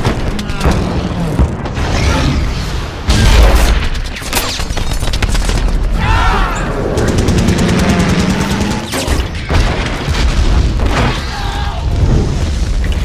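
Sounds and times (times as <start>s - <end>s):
rapid gunfire: 0.0s - 1.6s, 6.8s - 10.9s
heavy explosions: 6.7s - 13.0s.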